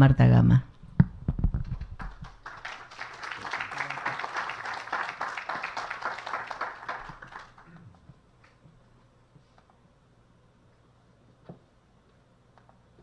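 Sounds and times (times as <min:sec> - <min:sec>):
audience applauding: 0:01.8 - 0:07.9.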